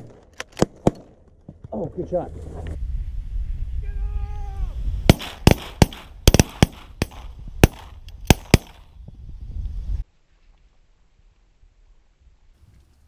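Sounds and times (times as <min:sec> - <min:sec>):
wind rumble on microphone: 0:02.2 - 0:10.1
shotgun shots: 0:05.1 - 0:08.9.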